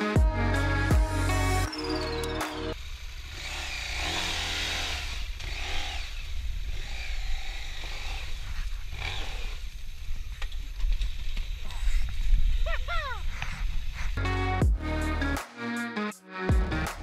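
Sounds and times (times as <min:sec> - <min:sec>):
motorcycle engine revving: 0:01.0 - 0:09.8.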